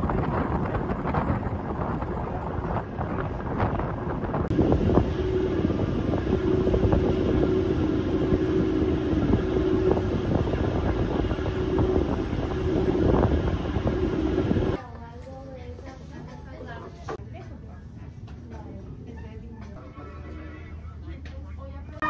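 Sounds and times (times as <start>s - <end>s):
boat engine droning: 0.0s - 14.8s
wind buffeting microphone: 0.0s - 14.8s.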